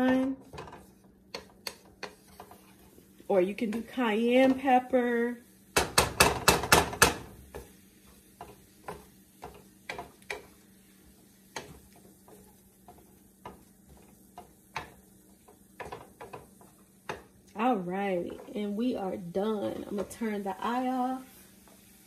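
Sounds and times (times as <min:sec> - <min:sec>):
wooden spatula knocking on skillet: 0:00.0 - 0:02.7, 0:05.7 - 0:17.4.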